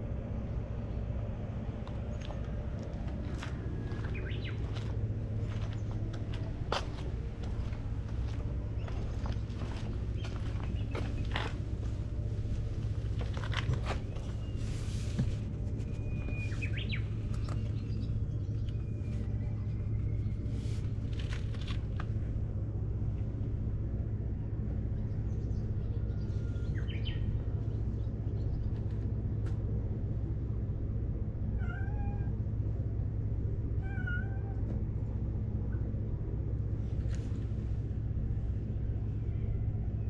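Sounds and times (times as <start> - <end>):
low rumble: 0.0 - 40.0
cat meowing: 31.6 - 32.4, 33.8 - 34.6.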